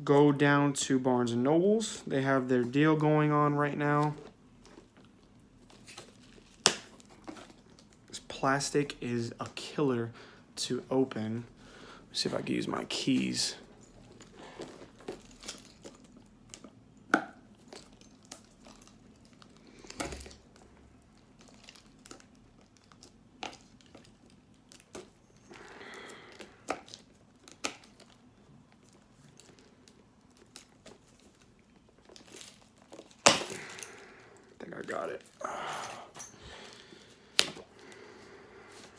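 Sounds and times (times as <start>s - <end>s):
plastic shrink-wrap crinkling: 4.2s - 8.0s, 17.6s - 35.4s
shrink-wrap tearing crackle: 21.2s - 35.4s.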